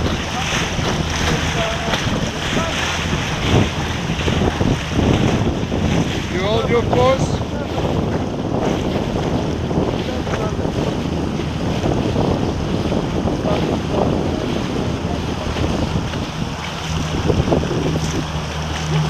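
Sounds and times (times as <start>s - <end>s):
water splashing past boat hull: 0.0s - 19.0s
wind buffeting microphone: 0.0s - 19.0s.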